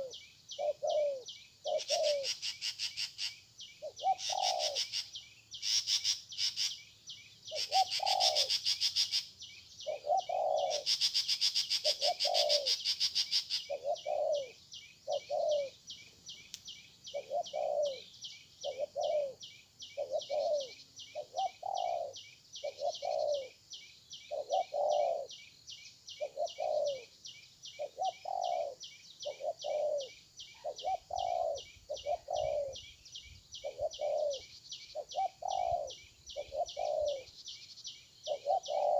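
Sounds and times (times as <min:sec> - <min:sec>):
dove cooing: 0:00.0 - 0:02.7, 0:03.8 - 0:05.1, 0:07.5 - 0:09.1, 0:09.8 - 0:15.8, 0:17.1 - 0:23.6, 0:24.3 - 0:25.4, 0:26.2 - 0:27.1, 0:27.8 - 0:32.9, 0:33.6 - 0:37.4, 0:38.2 - 0:38.9.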